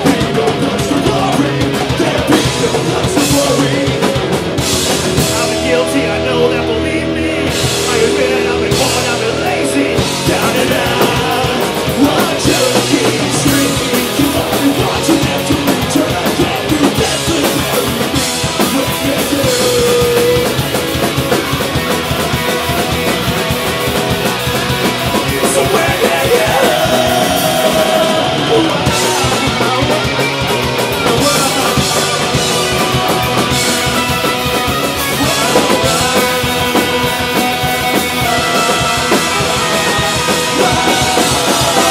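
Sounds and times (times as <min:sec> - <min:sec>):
punk rock band playing: 0:00.0 - 0:41.9
shouted vocals: 0:07.9 - 0:20.9, 0:25.3 - 0:41.9.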